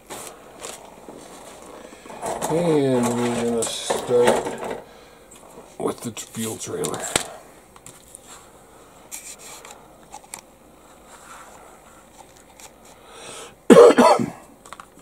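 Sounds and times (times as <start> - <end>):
plastic sprue clicks and rustles: 0.0 - 8.3, 9.1 - 13.0, 14.6 - 15.0
intake of breath: 4.8 - 5.4, 12.8 - 13.6
person sneezing: 13.7 - 14.5.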